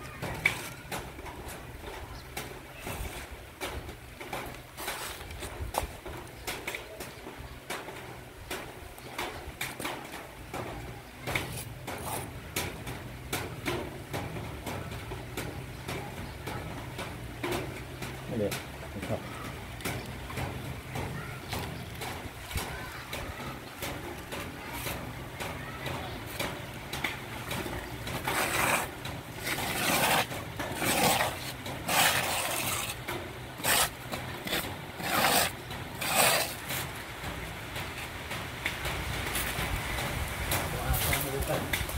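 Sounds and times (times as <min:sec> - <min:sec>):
puppies licking and scraping: 0:18.4 - 0:41.9.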